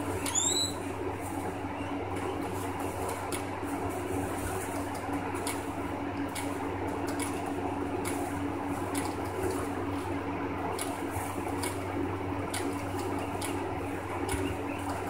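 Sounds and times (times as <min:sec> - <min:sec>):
guinea pigs chewing hay: 0:00.0 - 0:15.0
steady low hum: 0:00.0 - 0:15.0.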